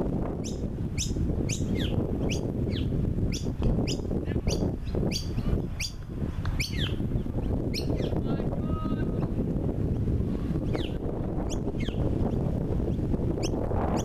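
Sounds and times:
bird chirping: 0:00.4 - 0:06.0, 0:06.6 - 0:08.2, 0:10.7 - 0:12.4.

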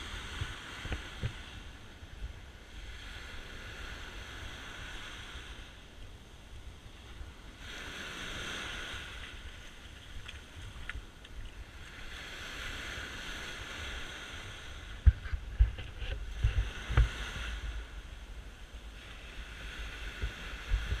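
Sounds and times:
small waves washing up sand: 0:00.0 - 0:21.0
thumps on microphone: 0:15.0 - 0:17.2.

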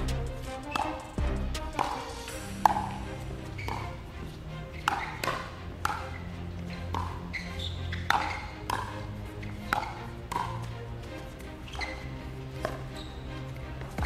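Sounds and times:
background music: 0:00.0 - 0:14.0
paddles striking plastic ball: 0:08.1 - 0:08.9.

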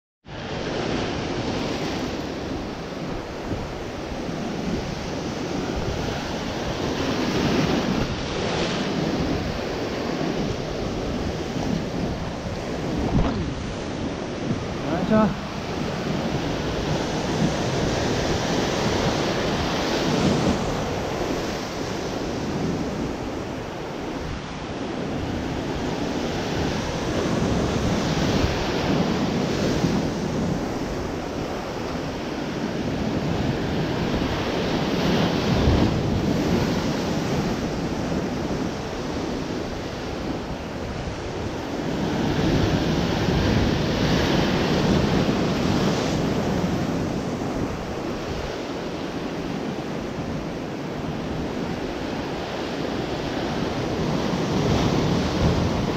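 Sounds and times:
wind buffeting microphone: 0:00.2 - 0:55.9
surf breaking on rocky shore: 0:00.3 - 0:55.9.

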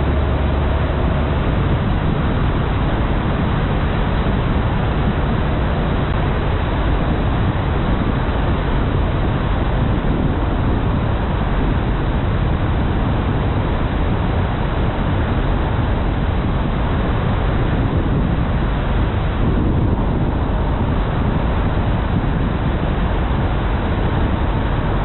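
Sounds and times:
car tyre and wind noise: 0:00.0 - 0:25.0.

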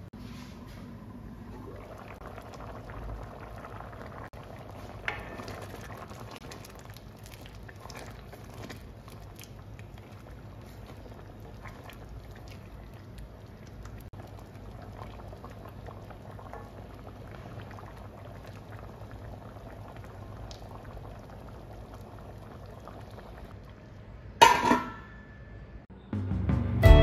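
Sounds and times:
stew bubbling in a pan: 0:01.2 - 0:24.6
wooden spoon stirring: 0:04.6 - 0:14.0.

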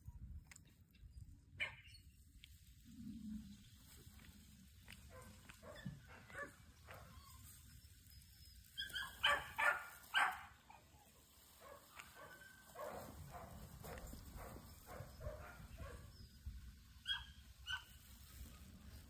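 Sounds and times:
puppy yipping: 0:01.6 - 0:02.2, 0:05.1 - 0:16.0, 0:17.0 - 0:18.0.

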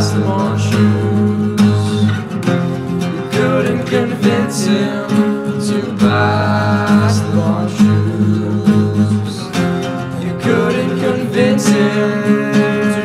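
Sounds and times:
acoustic guitars strummed: 0:00.0 - 0:13.0
man singing: 0:00.0 - 0:13.0.

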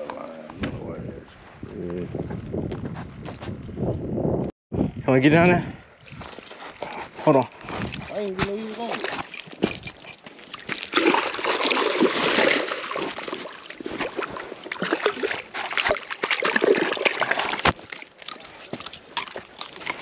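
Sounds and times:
fish splashing in water: 0:10.5 - 0:18.5.

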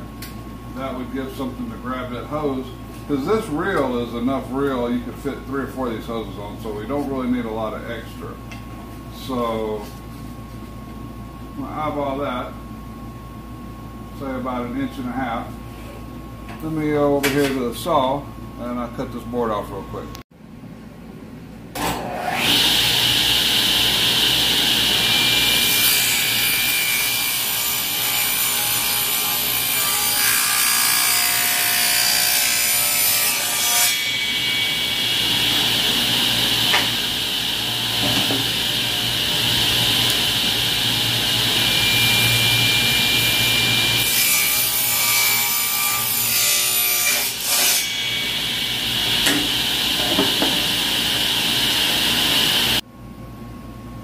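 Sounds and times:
table saw cutting wood: 0:21.8 - 0:52.8.

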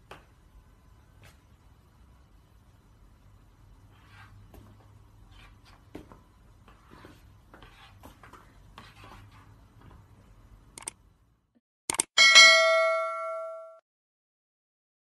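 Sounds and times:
low steady hum: 0:00.0 - 0:11.5
sharp clicks: 0:10.8 - 0:11.0, 0:11.9 - 0:12.1.

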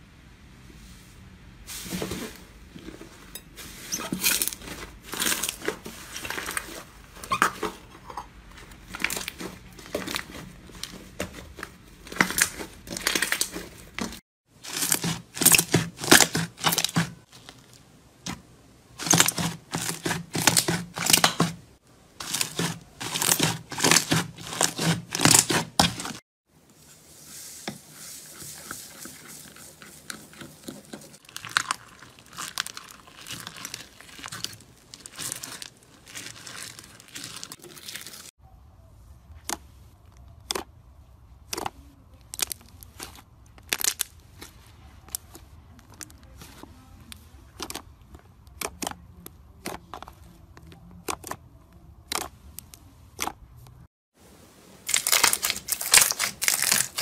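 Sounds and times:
spatula stirring fluffy slime: 0:01.7 - 0:38.4, 0:54.9 - 0:57.0.

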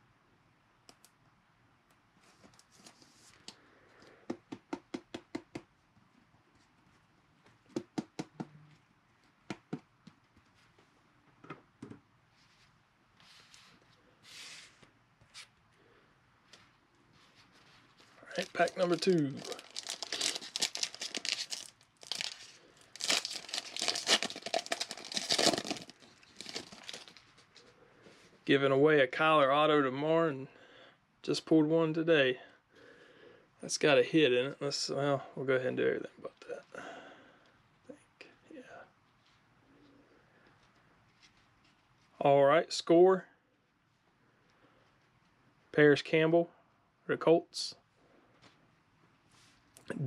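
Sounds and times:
foil pack tearing: 0:18.3 - 0:27.2
foil wrapper crinkling: 0:18.3 - 0:27.6.

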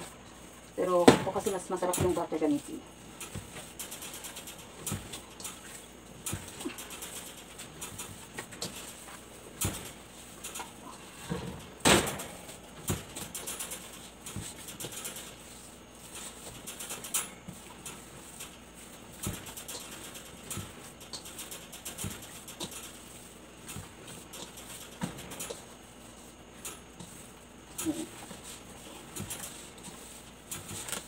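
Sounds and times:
dough squishing and slapping: 0:00.0 - 0:31.0.

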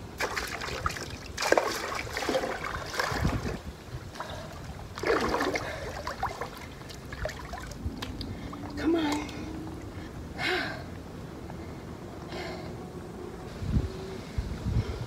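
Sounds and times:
water splashing in a pool: 0:00.0 - 0:09.5.

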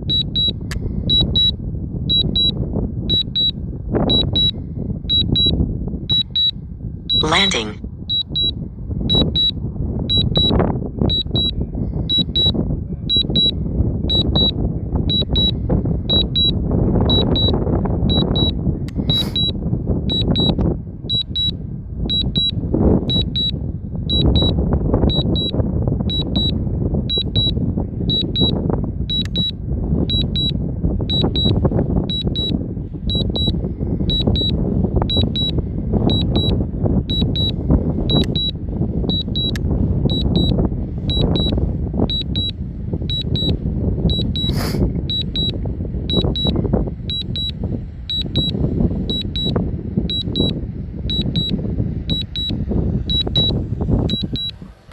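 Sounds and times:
wind buffeting microphone: 0:00.0 - 0:54.9
remote controller beeping: 0:39.1 - 0:40.5.

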